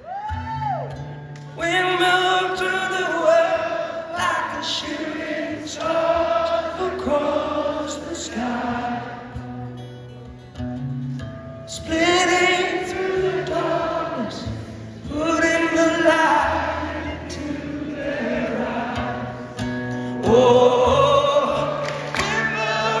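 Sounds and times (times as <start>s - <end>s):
acoustic guitar: 0.0s - 23.0s
person singing: 20.2s - 23.0s.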